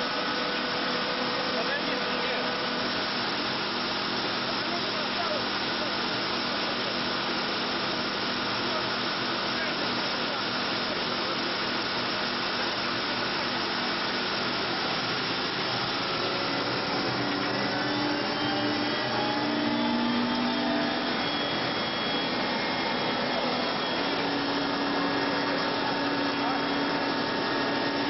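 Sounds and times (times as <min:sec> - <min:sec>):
helicopter engine and rotor whine: 0:00.0 - 0:28.0
faint tones sliding upward: 0:15.8 - 0:28.0.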